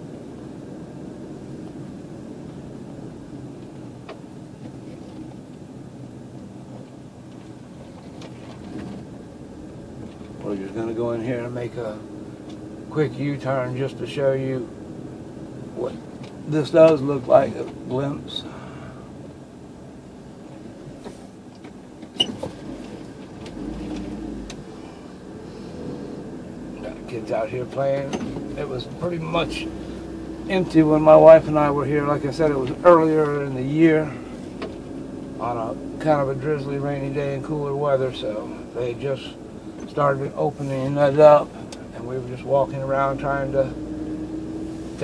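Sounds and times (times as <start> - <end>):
car engine and road hum: 0.0 - 45.0.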